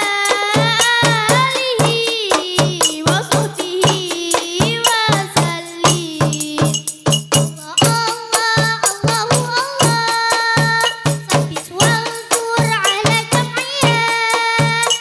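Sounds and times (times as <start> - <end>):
frame drums: 0.0 - 15.0
girl singing: 0.0 - 15.0
tambourine jingles: 0.0 - 15.0.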